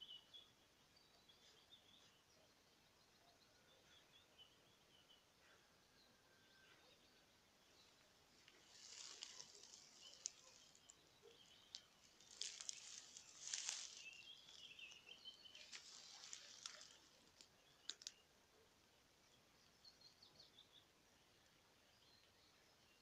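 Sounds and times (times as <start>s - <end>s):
distant small birds chirping: 0.0s - 23.0s
soft rustling and crackling: 7.9s - 18.2s.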